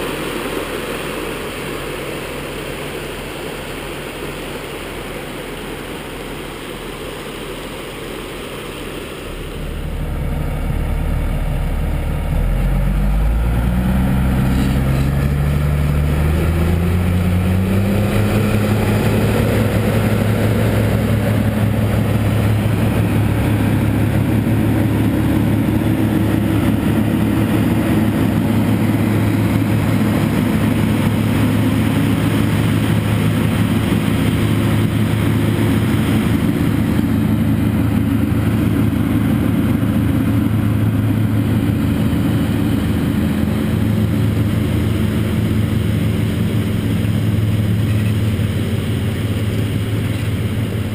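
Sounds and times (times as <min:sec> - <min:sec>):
heavy diesel engines under load: 0:00.0 - 0:50.9.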